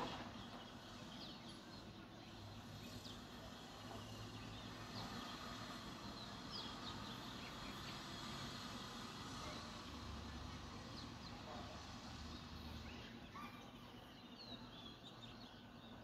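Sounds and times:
sparrows chirping: 0.0 - 16.0.

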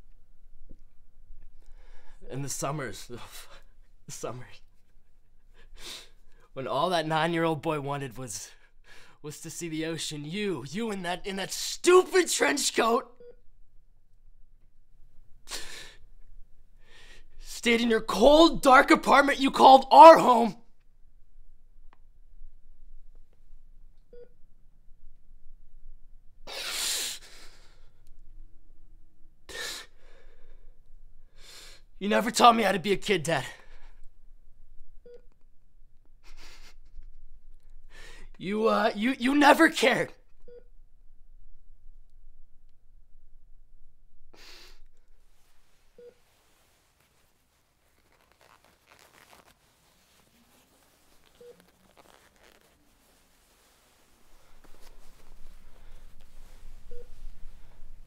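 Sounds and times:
man sniffing: 15.5 - 16.0, 26.4 - 27.8, 36.2 - 37.0, 44.4 - 44.9
faint rustling: 45.0 - 58.0.

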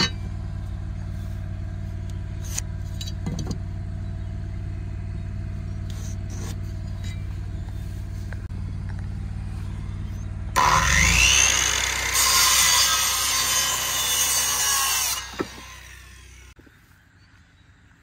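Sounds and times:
steady engine hum: 0.0 - 18.0
power saw cutting wood: 9.8 - 16.6.

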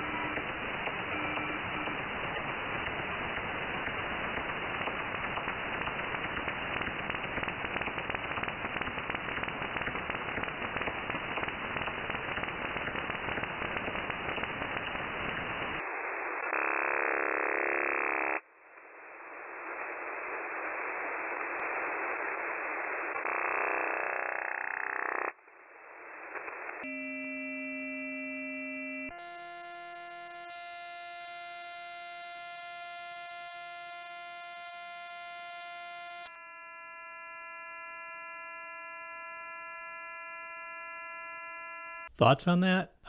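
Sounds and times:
radio static with fast flutter: 0.0 - 26.9.

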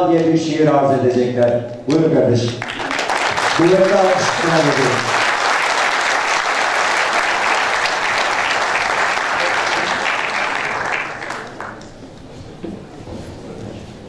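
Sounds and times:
audience applauding: 2.4 - 12.3.

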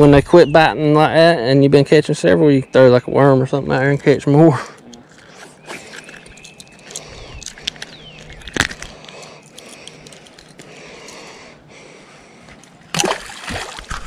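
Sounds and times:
hands handling fish and hooks: 4.8 - 11.4.

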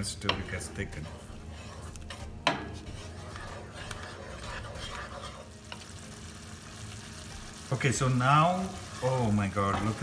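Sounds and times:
wooden spoon stirring thick sauce: 0.0 - 6.2
sauce sizzling: 0.0 - 10.0.

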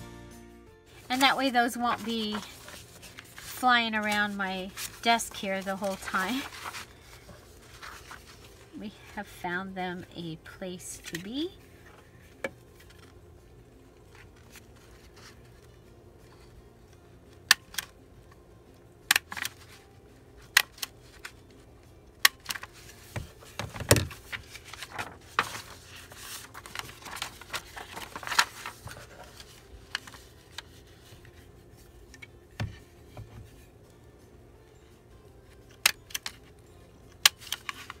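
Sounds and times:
paper rustling: 0.9 - 9.2, 14.0 - 16.5, 22.3 - 32.2.

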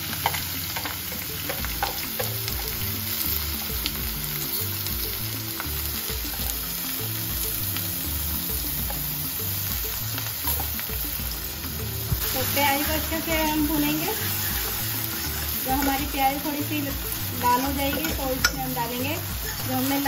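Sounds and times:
background music with bass: 0.0 - 20.0
onions sizzling in hot oil: 0.0 - 20.0.

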